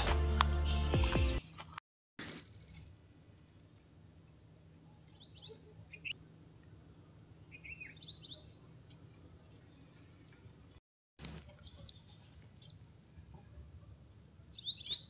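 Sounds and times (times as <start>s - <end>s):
birds chirping: 0.6s - 15.0s.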